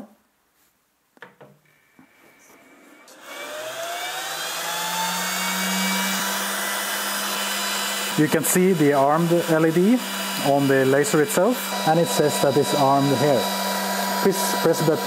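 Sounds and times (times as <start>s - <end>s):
cooling fan whirring: 3.0s - 15.0s.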